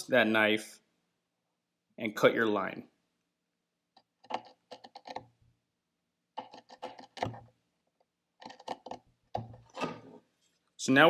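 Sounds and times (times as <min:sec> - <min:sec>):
knife scratching wood: 0:06.4 - 0:07.5, 0:08.4 - 0:10.2.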